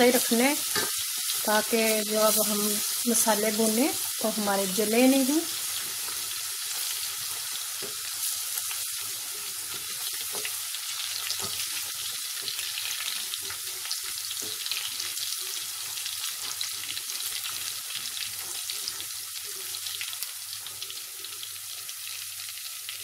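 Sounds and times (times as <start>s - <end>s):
spices sizzling in oil: 0.0s - 23.0s.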